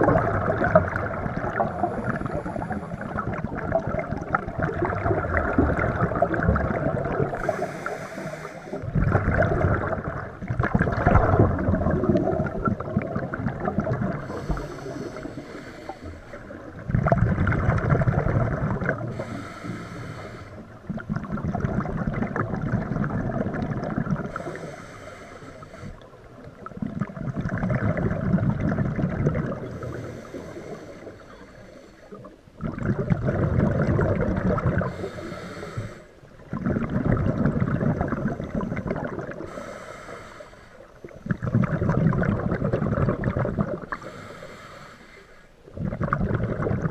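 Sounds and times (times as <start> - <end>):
exhaust bubbles rushing: 0.0 - 7.5, 8.8 - 14.6, 16.7 - 19.1, 20.9 - 24.3, 32.6 - 34.9, 36.5 - 39.4, 41.3 - 43.9, 45.8 - 46.9
regulator inhale hiss: 1.6 - 3.2, 7.3 - 8.8, 14.2 - 16.7, 19.1 - 20.8, 24.3 - 26.2, 29.7 - 32.4, 34.8 - 36.3, 39.4 - 41.2, 43.9 - 45.7.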